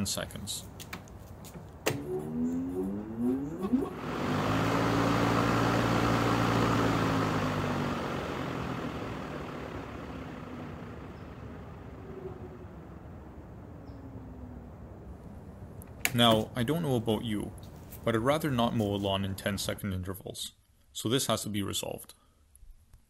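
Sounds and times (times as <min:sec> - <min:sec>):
mower blade whirring: 0:01.8 - 0:13.4
electric lawnmower motor hum: 0:01.9 - 0:15.0.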